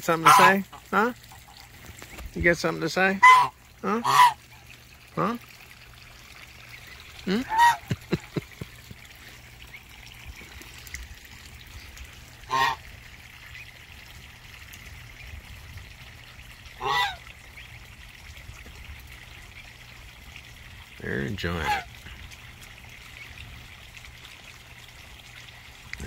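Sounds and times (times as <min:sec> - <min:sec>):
goose honking: 0:00.0 - 0:01.1, 0:03.2 - 0:04.4, 0:07.3 - 0:07.9, 0:12.5 - 0:12.8, 0:16.8 - 0:17.2
trickling water: 0:00.0 - 0:26.0.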